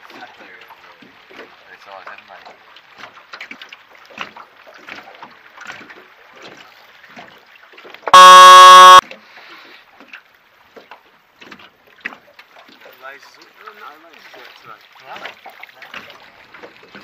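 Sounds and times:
signal horn blast: 8.1 - 9.0.

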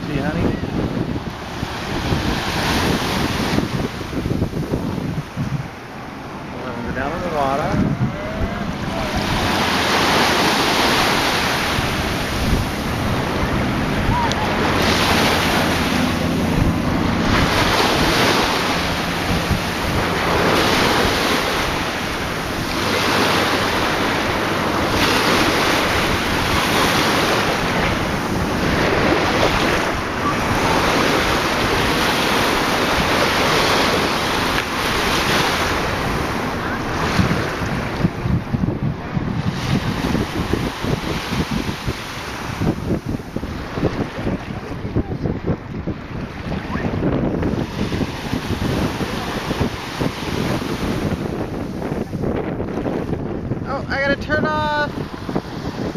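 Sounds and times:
low engine hum: 0.0 - 53.7
rushing sea water: 0.0 - 55.9
wind buffeting microphone: 0.0 - 55.9.

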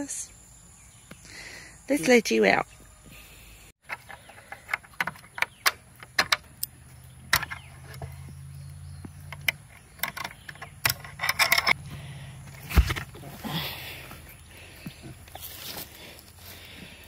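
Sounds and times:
metal gate latch clicking: 9.3 - 11.8.

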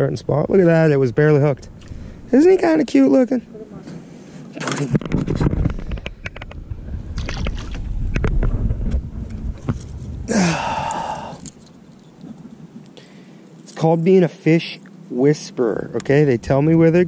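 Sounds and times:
wind rumble on microphone: 5.0 - 11.5.

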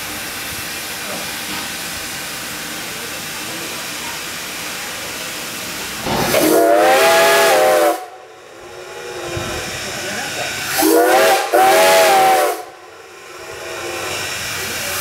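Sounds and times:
steam hissing: 0.0 - 15.0
steam locomotive whistle: 6.1 - 8.2, 10.7 - 12.8.

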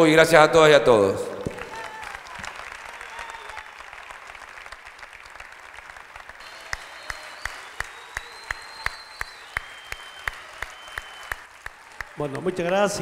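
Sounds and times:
audience applauding: 1.4 - 13.0
rhythmic clapping in unison: 1.5 - 13.0.

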